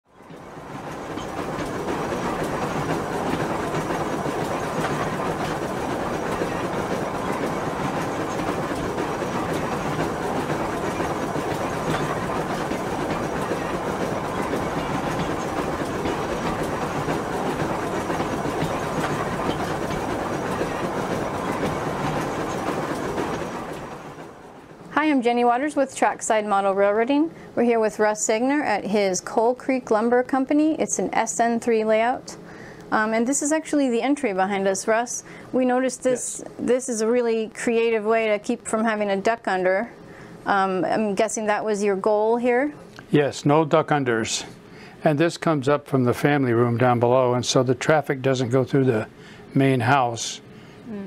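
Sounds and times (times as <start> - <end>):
train rumble with rail clatter: 0.1 - 26.5.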